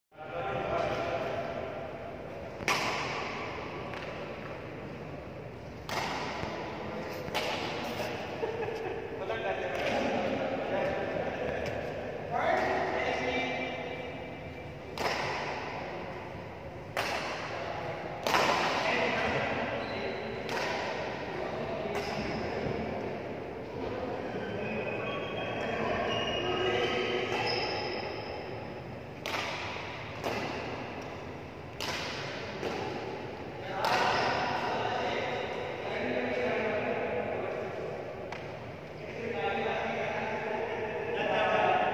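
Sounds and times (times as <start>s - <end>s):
hall background noise: 0.2s - 41.9s
steady background hum: 0.2s - 41.9s
sharp echoing impacts: 0.7s - 24.2s, 26.8s - 37.2s
racket hitting shuttlecock: 2.6s - 4.6s, 5.8s - 8.2s, 14.9s - 15.9s, 16.9s - 19.6s, 20.4s - 21.3s, 29.2s - 33.2s, 33.8s - 34.6s.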